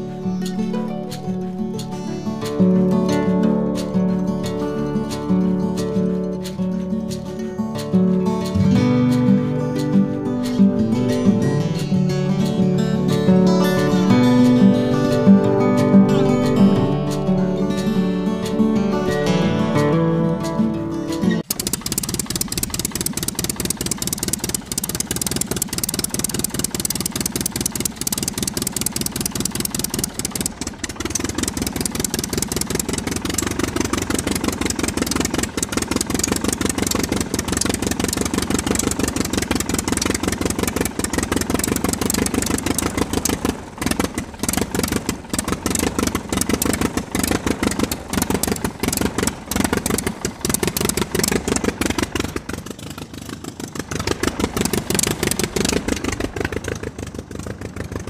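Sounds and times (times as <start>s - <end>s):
model tractor motor clattering: 3.8s - 11.9s, 21.4s - 58.0s.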